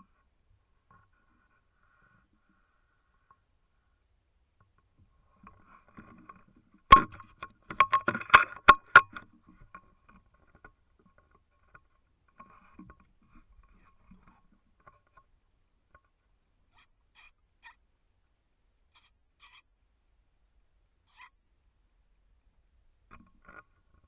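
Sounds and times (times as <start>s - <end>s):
rifle clicks and knocks: 5.4s - 13.2s.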